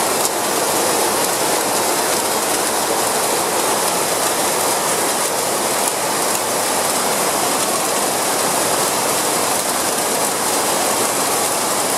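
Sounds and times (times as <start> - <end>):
heavy rain on metal roofs: 0.0 - 11.9
runoff pouring off roof: 0.0 - 11.9.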